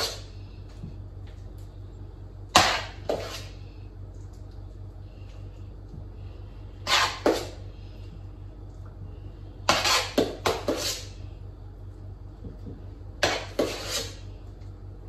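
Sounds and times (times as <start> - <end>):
steady low hum: 0.0 - 15.0
metal spoon scraping a pot: 2.6 - 3.6, 6.8 - 7.6, 9.7 - 11.1, 13.2 - 14.2.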